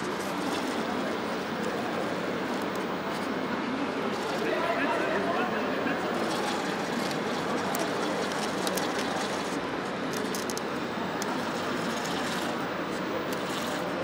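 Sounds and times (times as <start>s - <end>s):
hubbub of a busy hall: 0.0s - 14.0s
small clicks and crunches: 6.4s - 11.4s.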